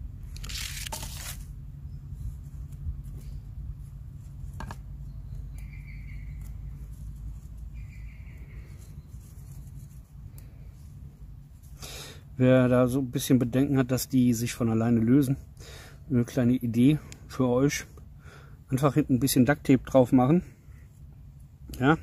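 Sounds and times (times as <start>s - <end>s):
cord rustling and rubbing: 0.2s - 5.4s, 6.2s - 11.8s.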